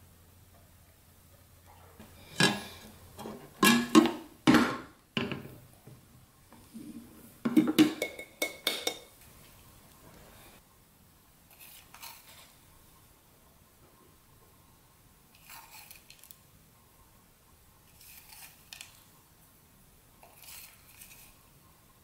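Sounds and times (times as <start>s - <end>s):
glass dish knocking on plate: 7.5s - 9.1s.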